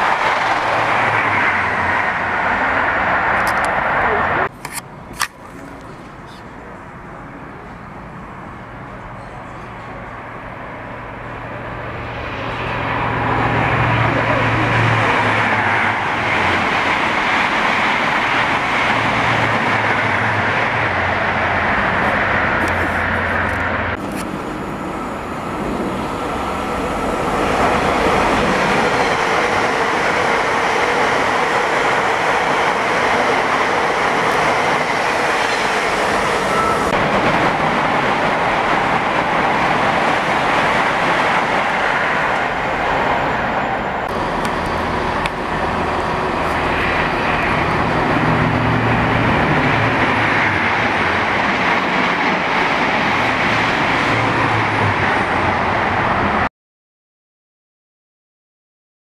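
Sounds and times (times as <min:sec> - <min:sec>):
train wheels rushing on rails: 0:00.0 - 0:06.8, 0:09.0 - 0:56.5.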